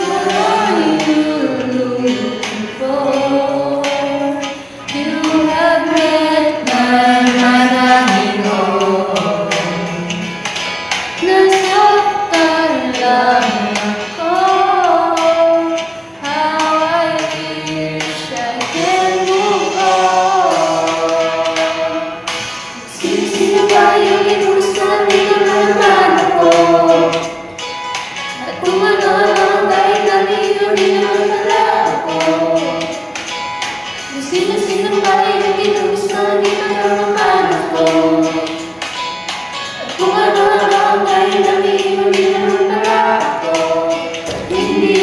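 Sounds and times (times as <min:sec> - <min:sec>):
person singing: 0:00.0 - 0:10.4, 0:11.2 - 0:27.4, 0:28.4 - 0:33.1, 0:34.1 - 0:38.8, 0:39.6 - 0:45.0
steady drum beat: 0:00.0 - 0:10.4, 0:22.8 - 0:27.6, 0:39.9 - 0:45.0.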